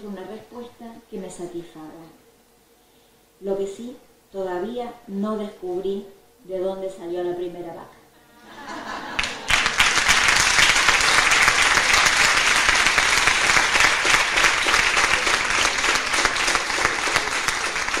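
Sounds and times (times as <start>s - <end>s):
audience applauding: 9.0s - 18.0s.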